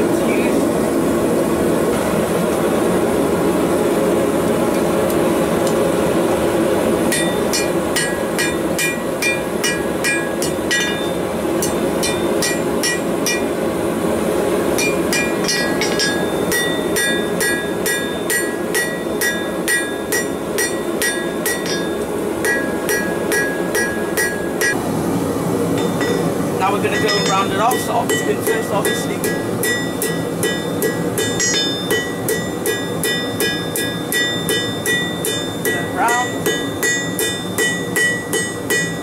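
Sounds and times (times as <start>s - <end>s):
forge burner roaring: 0.0s - 39.0s
hammer striking steel on anvil: 7.1s - 13.5s, 14.7s - 24.8s, 25.8s - 26.3s, 26.9s - 39.0s.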